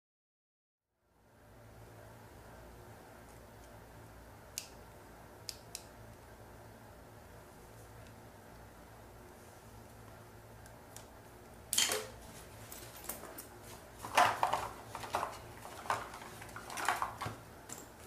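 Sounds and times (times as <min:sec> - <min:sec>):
small hard objects clattering: 0:14.0 - 0:17.4.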